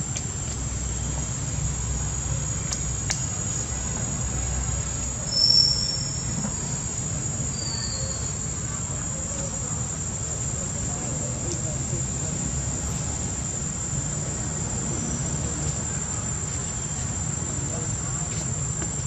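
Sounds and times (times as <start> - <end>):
low outdoor rumble: 0.0 - 19.0
high-pitched insect drone: 3.2 - 10.7
short high chirp: 5.3 - 6.3.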